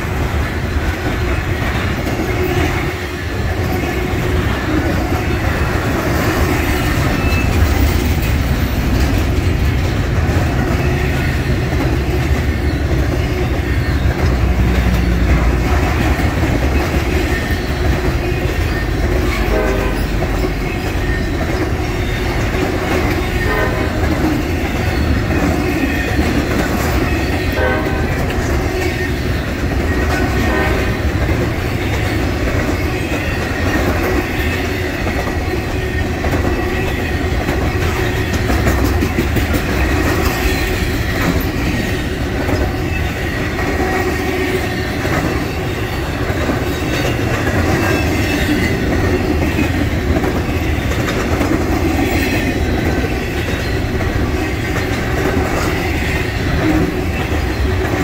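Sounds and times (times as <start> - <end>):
train wheels rumbling on rail: 0.0 - 58.0
wheels clicking over rail joints: 0.0 - 58.0.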